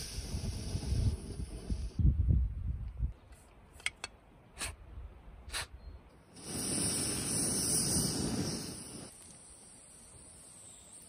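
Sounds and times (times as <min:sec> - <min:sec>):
gas stove hissing: 0:00.0 - 0:02.0, 0:06.3 - 0:11.0.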